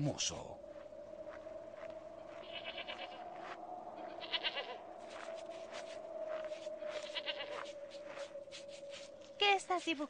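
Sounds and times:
goat bleating: 2.4 - 3.2, 4.1 - 4.8.

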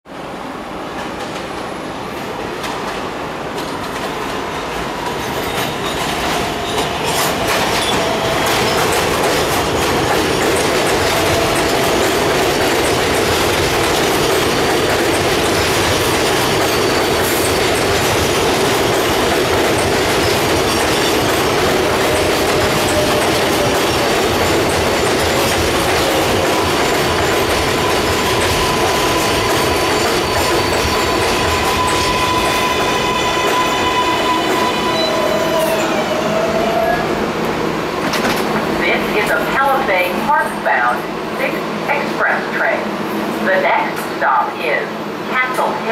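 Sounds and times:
train whine: 0.1 - 45.9
train wheels clattering: 2.6 - 35.5
train wheels squealing: 14.2 - 18.0, 26.0 - 37.0.

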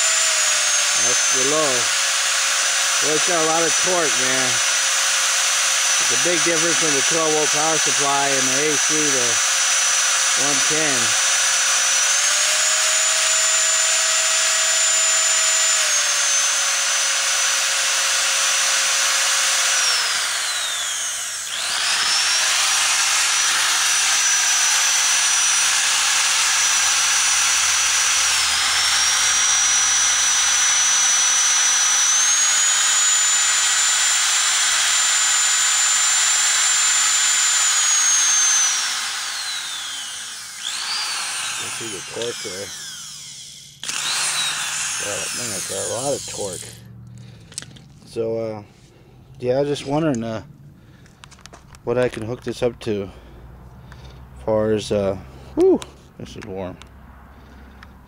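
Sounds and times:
vacuum cleaner motor whining: 0.0 - 2.2, 2.8 - 5.2, 11.8 - 46.7.

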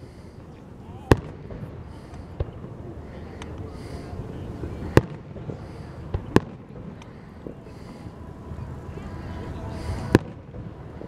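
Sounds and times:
people talking: 0.0 - 11.0
firework booms: 1.1 - 2.8, 4.9 - 7.6.

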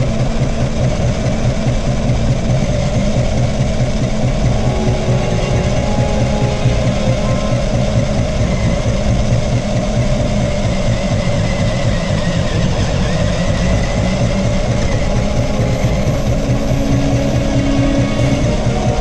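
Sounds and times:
faint high whine: 4.3 - 10.3, 13.1 - 19.0.

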